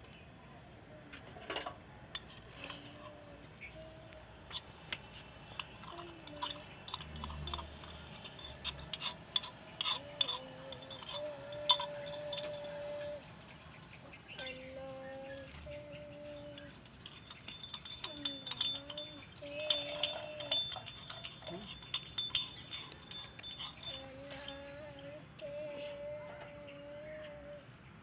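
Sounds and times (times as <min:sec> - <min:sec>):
metal utensils clinking: 0:01.4 - 0:03.1, 0:05.3 - 0:13.2, 0:14.4 - 0:24.8.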